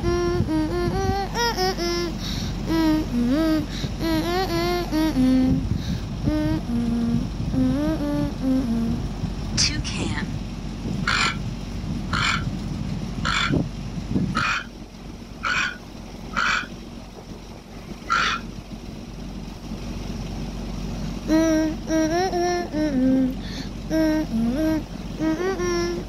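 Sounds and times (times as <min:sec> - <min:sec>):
toucan croaking through speaker: 0:11.0 - 0:11.4, 0:12.1 - 0:12.5, 0:13.2 - 0:13.6, 0:14.4 - 0:14.7, 0:15.4 - 0:16.8, 0:18.0 - 0:18.5
high voice bending pitch: 0:18.0 - 0:18.5, 0:21.2 - 0:26.0.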